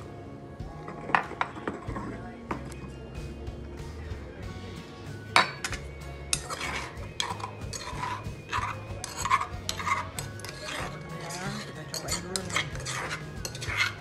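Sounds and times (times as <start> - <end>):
pestle grinding in stone mortar: 5.4 - 14.0.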